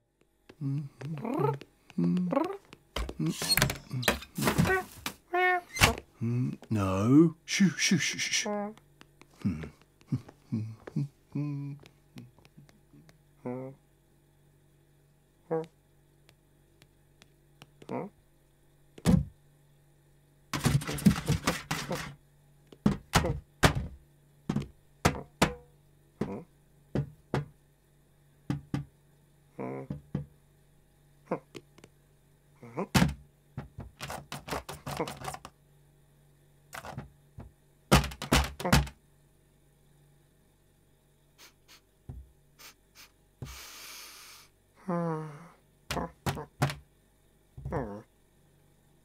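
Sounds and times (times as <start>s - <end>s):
noisy snuffle: 41.4s - 41.9s, 42.6s - 44.5s.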